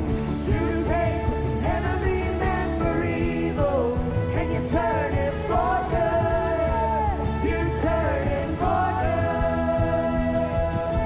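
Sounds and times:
live band with singing: 0.0 - 11.0.

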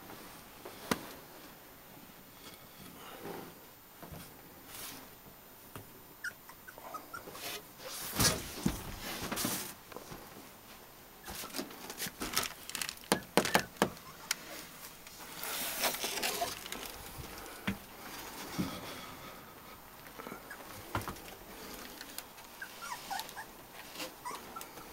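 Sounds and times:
puppies squeaking: 6.2 - 7.5, 22.5 - 24.9
sharp knocks and rustles: 7.3 - 18.9.

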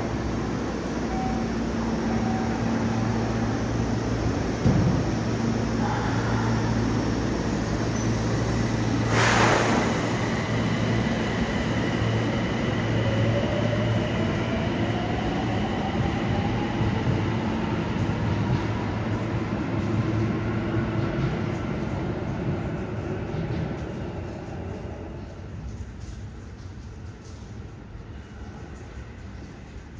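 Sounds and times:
burst of hiss: 9.1 - 10.2.

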